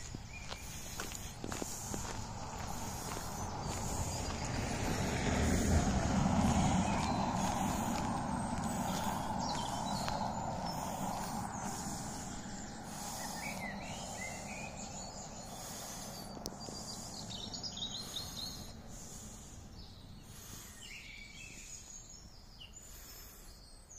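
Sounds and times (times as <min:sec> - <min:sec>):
songbirds chirping and singing: 0:00.0 - 0:23.9
steady background rush: 0:00.6 - 0:19.6.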